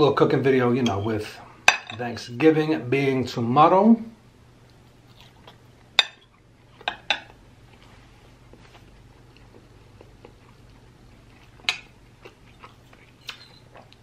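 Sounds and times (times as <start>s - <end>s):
fork clinking on ceramic plate: 6.0s - 6.3s.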